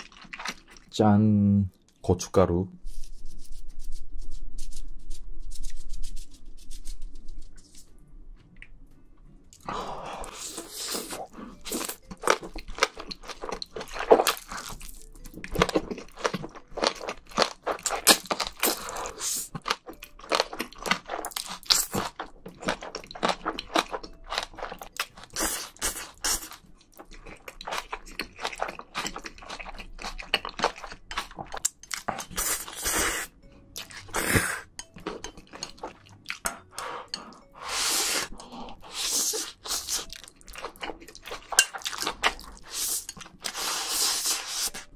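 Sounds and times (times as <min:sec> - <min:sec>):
wet mouth clicks and chewing: 0:19.4 - 0:32.9.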